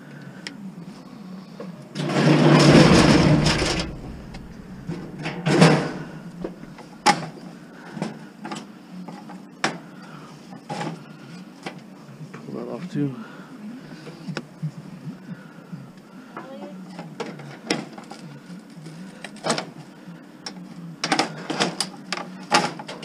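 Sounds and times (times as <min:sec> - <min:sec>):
loud rough rustling: 0:02.0 - 0:07.1
sharp clicks and knocks: 0:02.5 - 0:07.1.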